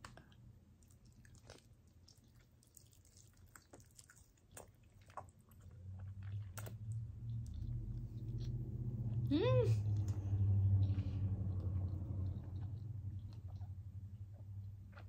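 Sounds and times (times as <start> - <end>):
chewing with lip smacks: 0.0 - 9.3, 9.9 - 15.0
low hum: 5.6 - 15.0.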